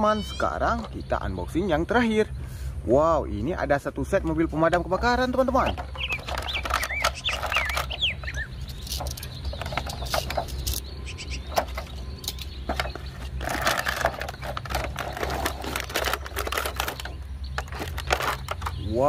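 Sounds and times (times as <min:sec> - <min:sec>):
bird chirping: 0:00.0 - 0:19.0
plastic tray crinkling: 0:05.2 - 0:10.8, 0:11.5 - 0:19.0.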